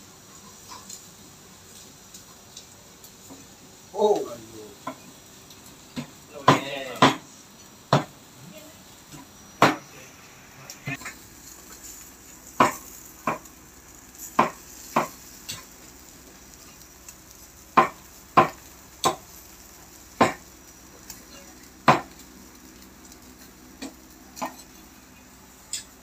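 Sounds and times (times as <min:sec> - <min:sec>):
meat sizzling: 0:00.0 - 0:26.0
metal tongs clacking on grill: 0:00.3 - 0:03.5, 0:10.9 - 0:26.0.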